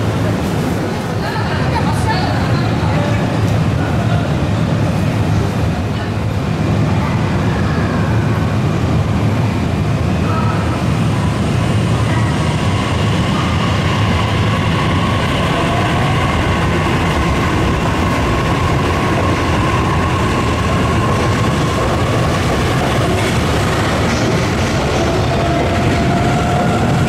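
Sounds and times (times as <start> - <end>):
train cars rumbling: 0.0 - 27.0
electric whine of train: 7.2 - 27.0.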